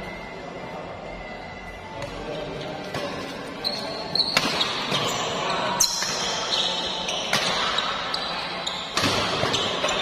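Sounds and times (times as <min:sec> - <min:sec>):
shoes squeaking on court floor: 0:02.0 - 0:10.0
racket striking shuttlecock: 0:04.3 - 0:05.1, 0:07.3 - 0:07.8, 0:08.9 - 0:10.0.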